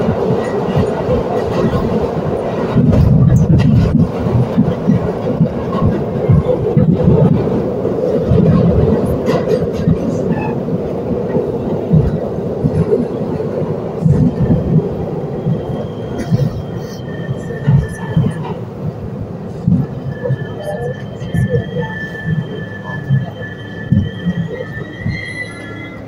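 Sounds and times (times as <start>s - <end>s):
subway train rumbling: 0.0s - 26.0s.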